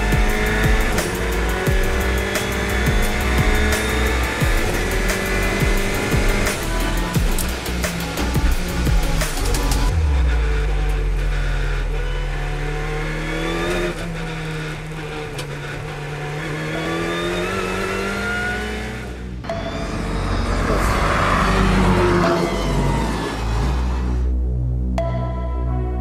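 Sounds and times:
race car engine revving: 0.0s - 24.4s
cars driving past: 13.7s - 24.4s.

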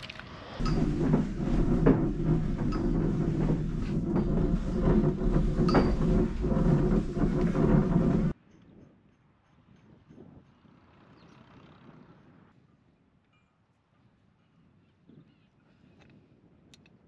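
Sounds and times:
cable reel rumbling: 0.6s - 8.4s.

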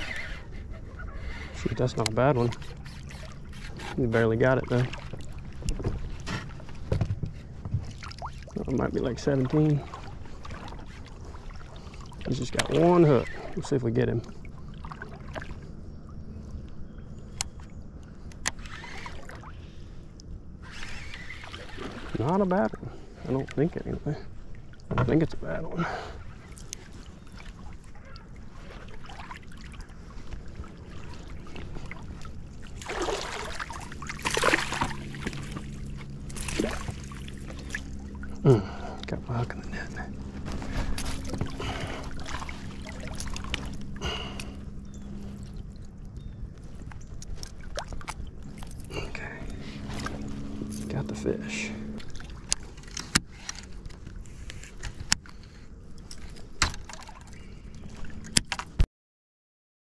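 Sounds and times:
fish splashing in water: 26.4s - 38.4s, 40.7s - 46.0s.

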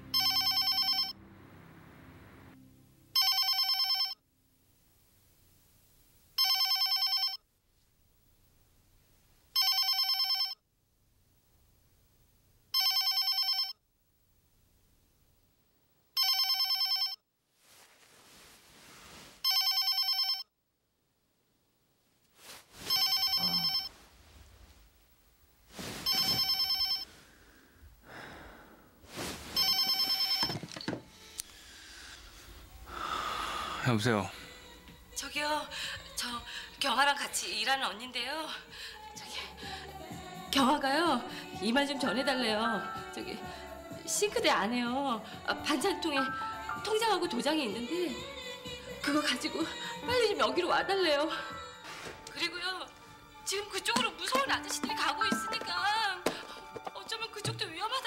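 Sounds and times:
mobile phone ringing: 0.1s - 1.2s, 3.1s - 4.2s, 6.4s - 7.4s, 9.6s - 10.6s, 12.7s - 13.8s, 16.2s - 17.2s, 19.4s - 20.5s, 22.8s - 23.9s, 26.0s - 27.1s, 29.4s - 31.0s, 54.0s - 57.6s
shuffling noises: 17.6s - 19.5s, 22.2s - 27.3s, 29.0s - 30.8s, 51.8s - 52.3s.

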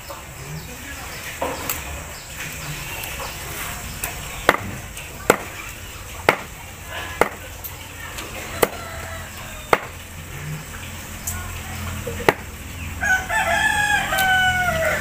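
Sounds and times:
knife chopping food: 9.7s - 10.0s.

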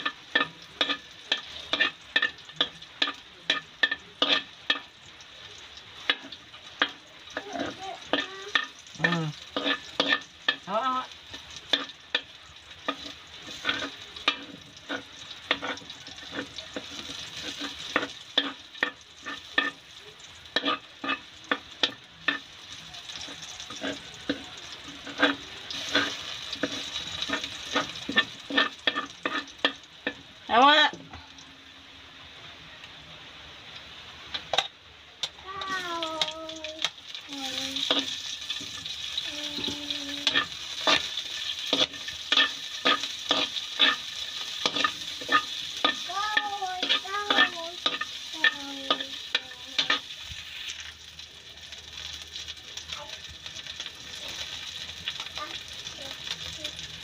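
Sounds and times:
metal spatula scraping wok: 0.0s - 4.9s, 6.0s - 10.6s, 11.3s - 19.8s, 20.5s - 30.2s, 37.3s - 50.9s
garlic sizzling in pan: 0.0s - 57.0s.

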